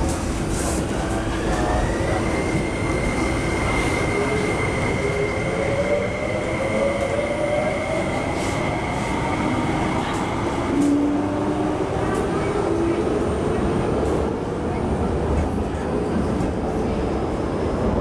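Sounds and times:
train high whine: 0.0s - 12.9s.

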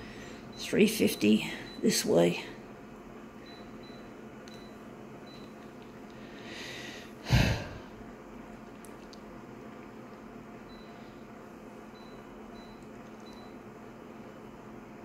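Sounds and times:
photocopier hum: 0.0s - 15.0s
person breathing through nose: 6.2s - 7.8s.

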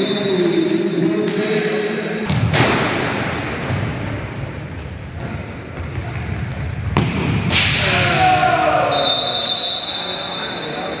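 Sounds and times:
ball struck on wooden court: 6.9s - 7.7s.

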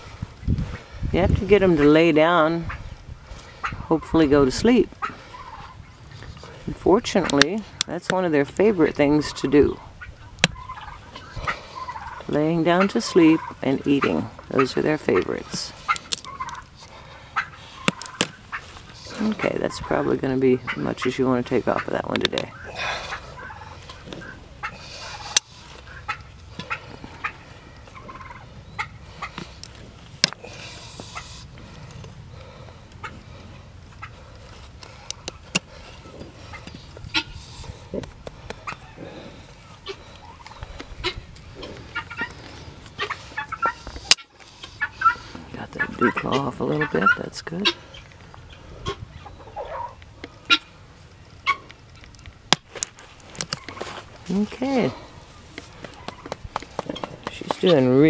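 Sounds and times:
turkey gobbling: 1.7s - 7.8s, 8.8s - 52.3s, 53.5s - 53.9s, 54.7s - 58.0s
hoof nippers snapping: 7.2s - 8.2s, 10.3s - 12.3s, 13.9s - 19.5s, 22.2s - 45.8s, 51.3s - 54.4s, 55.5s - 57.9s.

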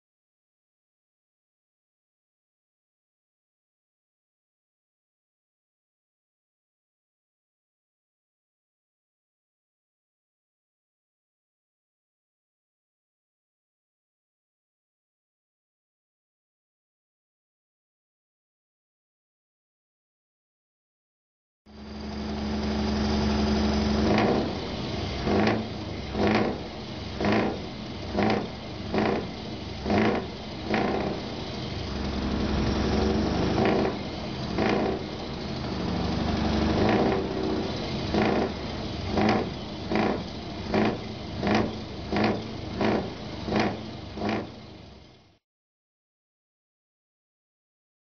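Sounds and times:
diesel engine idling and revving: 21.7s - 45.4s.

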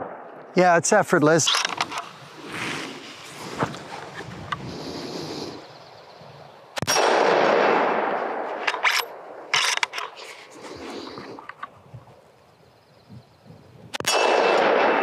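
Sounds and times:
rifle shot echoing: 0.0s - 0.6s, 6.8s - 9.5s, 13.9s - 15.0s
metallic clicks and clanks: 8.6s - 10.2s.

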